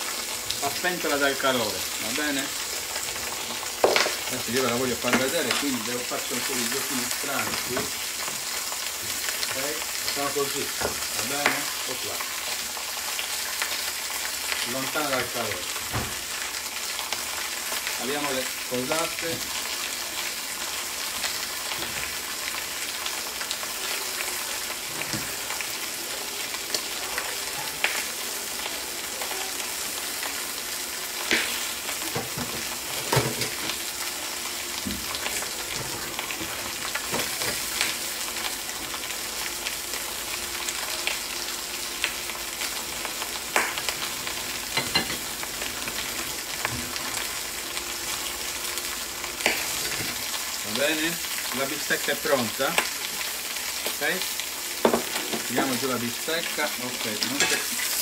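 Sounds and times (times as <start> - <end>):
steak sizzling on grill pan: 0.0 - 58.0.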